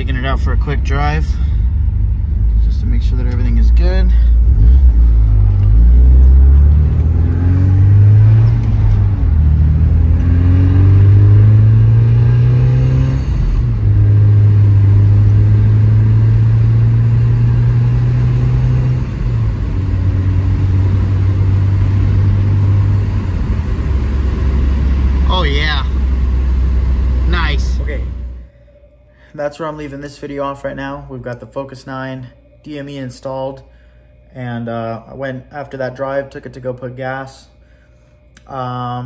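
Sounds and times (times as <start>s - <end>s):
car engine accelerating through gears: 0.0s - 28.5s.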